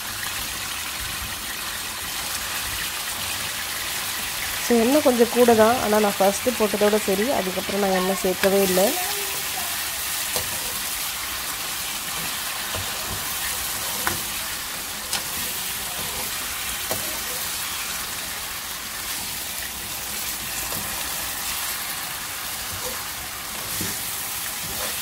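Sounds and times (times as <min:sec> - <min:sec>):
chicken sizzling in a pan: 0:00.0 - 0:25.0
metal spatula scraping pan: 0:12.0 - 0:17.9, 0:22.7 - 0:25.0.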